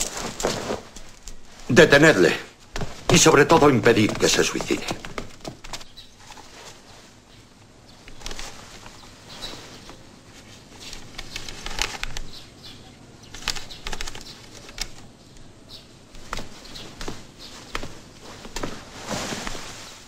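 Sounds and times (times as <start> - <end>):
paper pages rustling: 0.0 - 12.4, 13.2 - 15.2, 16.1 - 20.0
faint bird chirps: 5.8 - 18.5.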